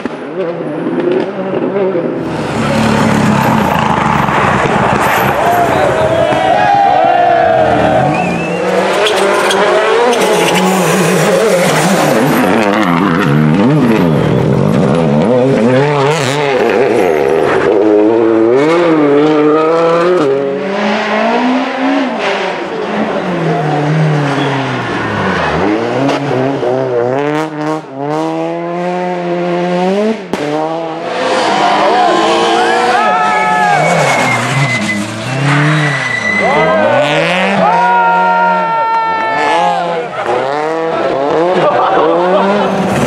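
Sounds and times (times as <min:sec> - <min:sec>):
rally car engines revving: 0:00.0 - 0:43.0
tyre squeal: 0:08.0 - 0:12.4, 0:24.2 - 0:25.5, 0:32.0 - 0:37.4.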